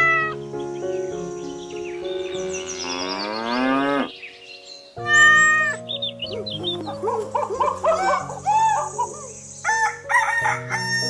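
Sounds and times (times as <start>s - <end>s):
light background music: 0.0s - 11.0s
cow mooing: 2.6s - 4.1s
loud animal call: 5.0s - 5.9s.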